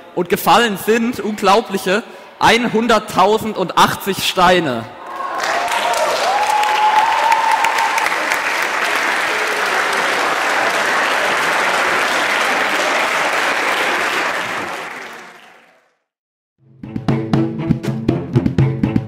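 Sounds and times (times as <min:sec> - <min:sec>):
crowd applauding: 0:05.0 - 0:16.1.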